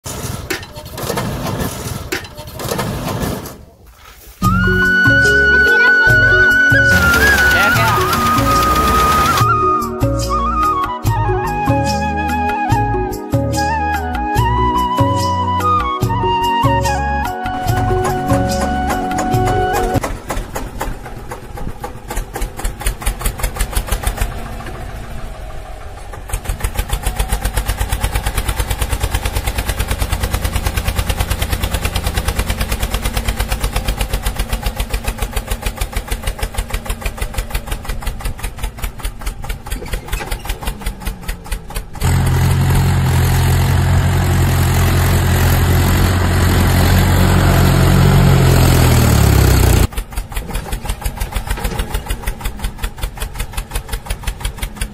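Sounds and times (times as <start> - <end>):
tractor engine hum: 0.0 - 54.9
small tractor engine chugging: 4.5 - 9.6, 17.5 - 54.9.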